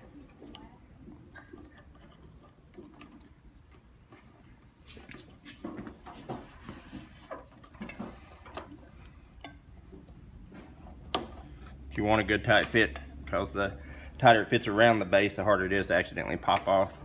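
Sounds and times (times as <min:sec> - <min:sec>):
rubber rubbing and handling noise: 0:00.0 - 0:11.9.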